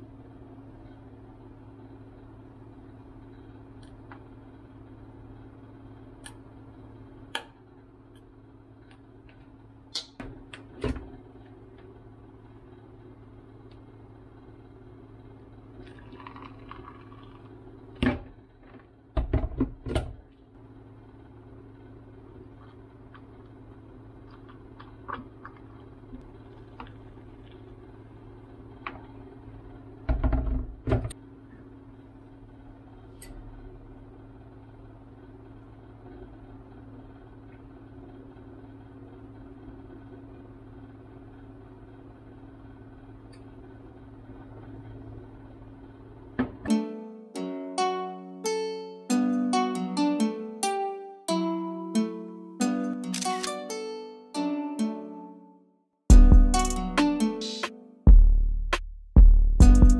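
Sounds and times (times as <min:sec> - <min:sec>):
steady low hum: 0:00.0 - 0:53.7, 0:56.1 - 0:59.9
hot water pouring into glass: 0:15.8 - 0:17.6.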